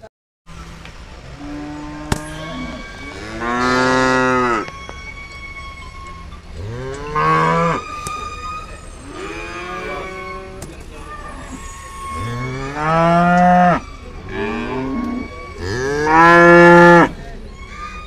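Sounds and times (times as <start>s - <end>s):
cattle mooing: 1.3s - 4.7s, 6.6s - 7.8s, 9.0s - 10.6s, 12.0s - 17.1s.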